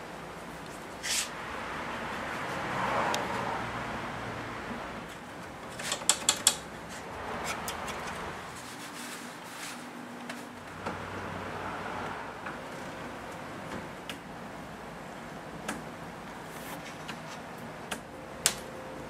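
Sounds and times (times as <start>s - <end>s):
low shop noise: 0.0s - 19.0s
sharp metal clicks: 5.6s - 6.7s.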